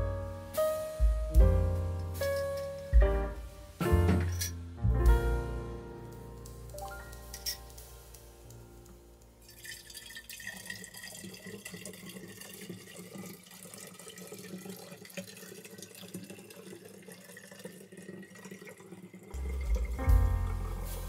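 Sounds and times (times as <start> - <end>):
liquid trickling into glass bottle: 9.4 - 20.0.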